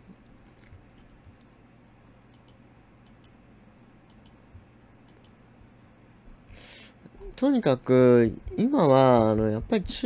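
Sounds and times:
faint computer mouse clicks: 2.3 - 3.4, 4.1 - 4.4, 5.0 - 5.4.

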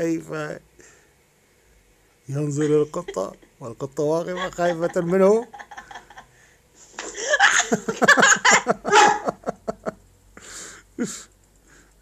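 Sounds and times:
person laughing: 2.5 - 3.5, 4.3 - 6.3, 7.0 - 10.0.

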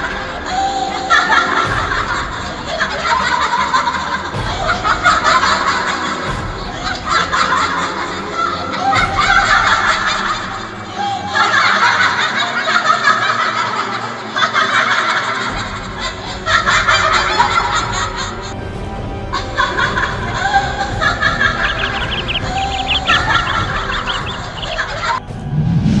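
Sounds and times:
background music: 0.0 - 26.0
quick snickering laughs: 19.6 - 25.2.

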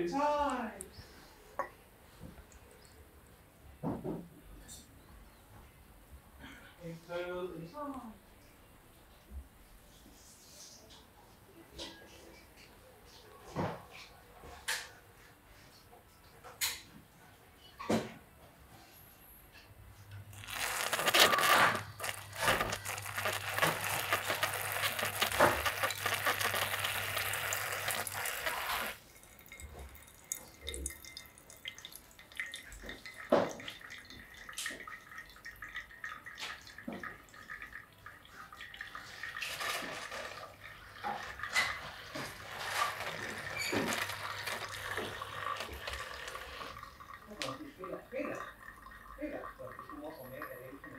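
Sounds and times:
coffee dripping: 20.0 - 50.9
water pouring onto coffee grounds: 20.3 - 50.9.

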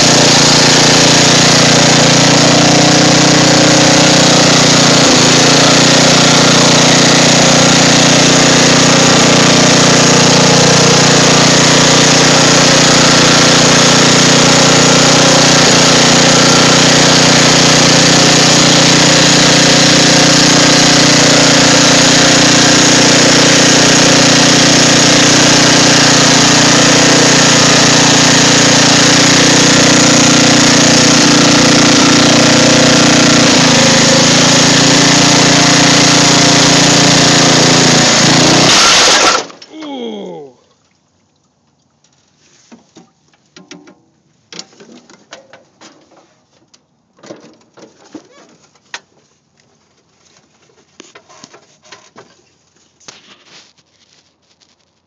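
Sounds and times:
riding mower engine running: 0.0 - 40.1.

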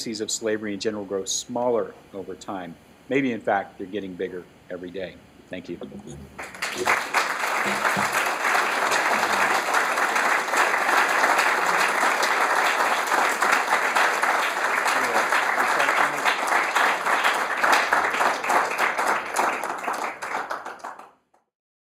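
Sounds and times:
audience applauding: 6.3 - 21.2.

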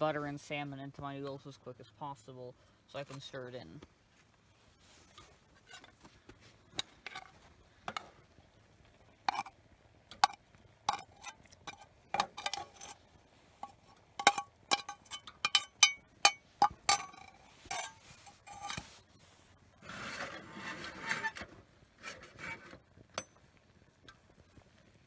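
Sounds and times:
metal spoon scraping a pan: 5.0 - 6.0, 9.3 - 9.6, 10.2 - 23.3.

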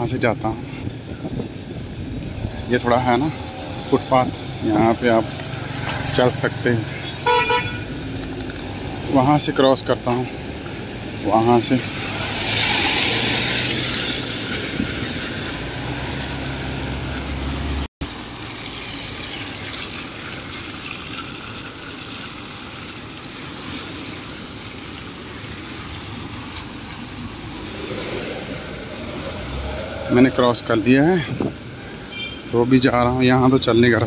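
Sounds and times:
tyres hissing on wet road: 0.7 - 33.9
vehicle swishing past: 11.7 - 17.9, 26.2 - 32.2.

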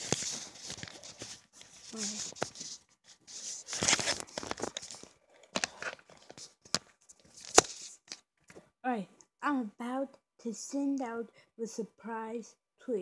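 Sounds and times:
phone rustling against fabric: 0.0 - 8.6.

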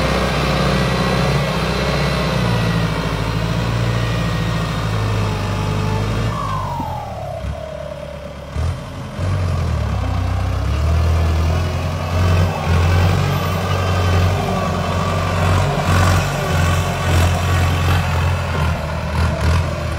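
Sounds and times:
tractor diesel engine under load: 0.0 - 19.9
turbo whistle: 5.2 - 9.0.

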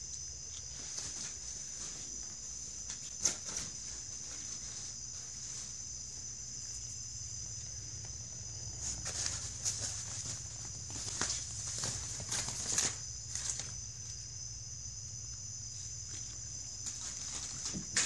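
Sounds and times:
nylon tunnel rustling: 8.6 - 13.8.

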